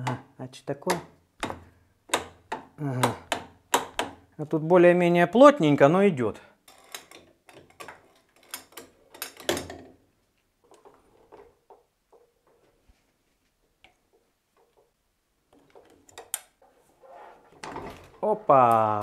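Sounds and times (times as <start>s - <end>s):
sharp metal clicks and knocks: 0.8s - 4.3s, 6.7s - 10.0s, 15.5s - 16.6s
faint taps and scrapes: 10.2s - 17.7s.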